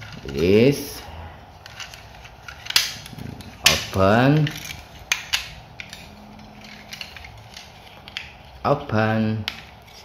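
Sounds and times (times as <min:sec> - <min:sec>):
plastic toy parts clicking: 0:01.6 - 0:08.6, 0:09.4 - 0:10.0.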